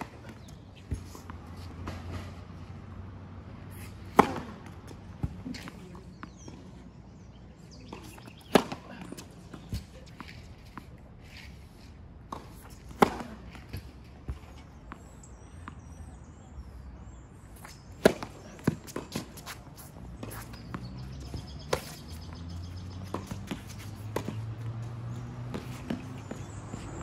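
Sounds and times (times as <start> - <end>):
tennis ball struck by rackets: 3.7 - 6.5, 7.9 - 10.8, 12.3 - 15.9, 17.6 - 27.0
footsteps and shoe scuffs: 18.8 - 27.0.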